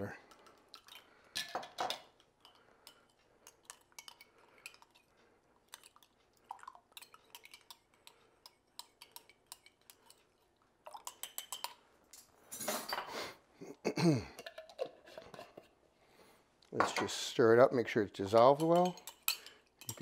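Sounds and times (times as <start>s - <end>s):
spoon clinking against ceramic mug: 10.9s - 11.8s, 18.5s - 20.0s.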